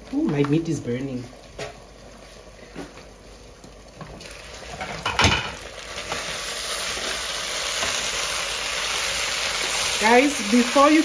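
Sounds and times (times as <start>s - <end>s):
food sizzling in a pan: 4.1s - 11.0s
cookware clattering: 4.8s - 5.6s.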